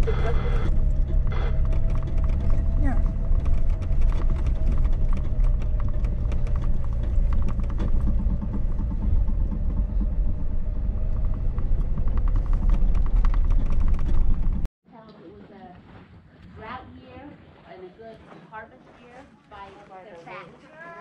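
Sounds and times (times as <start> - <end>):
vehicle engine rumble: 0.0 - 14.7
body and suspension rattling: 0.7 - 14.7.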